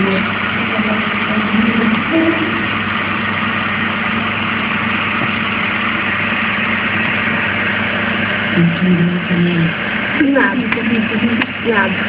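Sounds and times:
incubator fan humming: 0.0 - 12.0.

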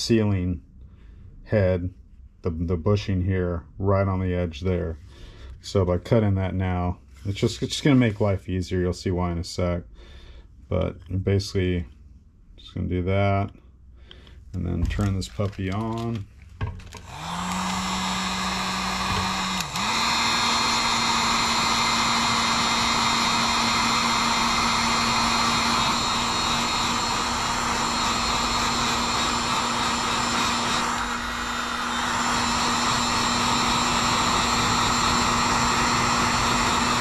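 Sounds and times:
heat gun blowing with fan hum: 14.1 - 37.0.

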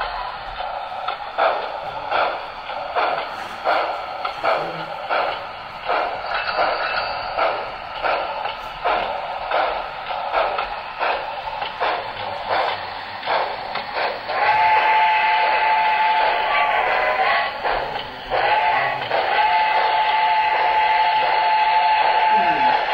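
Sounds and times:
model steam locomotive chuffing: 0.0 - 22.9
locomotive whistle blast: 14.4 - 16.4, 18.5 - 22.9.

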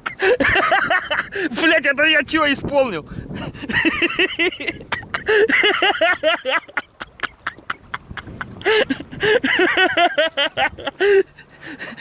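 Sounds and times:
men laughing: 0.0 - 1.5, 3.4 - 12.0.

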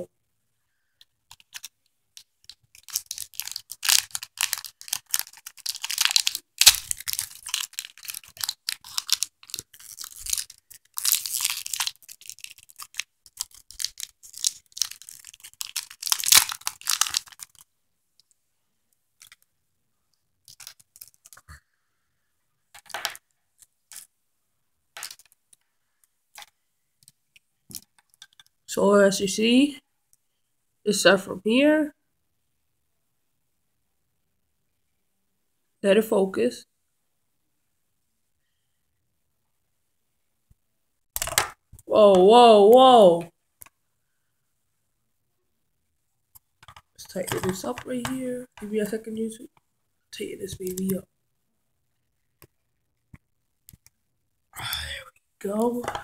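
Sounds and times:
plastic packaging crackling: 1.3 - 17.7, 20.5 - 21.4, 25.0 - 25.4.

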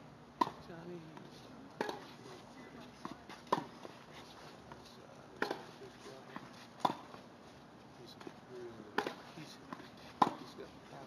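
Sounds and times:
tennis ball off racket strings: 1.2 - 2.2, 3.0 - 7.2, 8.2 - 10.6.

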